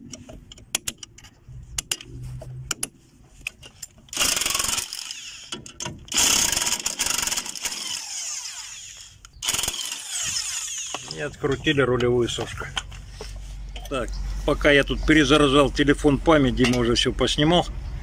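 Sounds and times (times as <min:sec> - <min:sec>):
power tool running: 0:04.1 - 0:05.5, 0:06.1 - 0:11.5.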